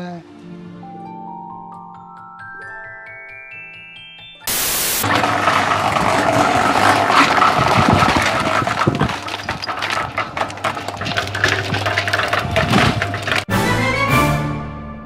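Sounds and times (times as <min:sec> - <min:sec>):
cement mixer humming: 0:04.5 - 0:13.5
wet concrete thudding into bucket: 0:05.0 - 0:13.5.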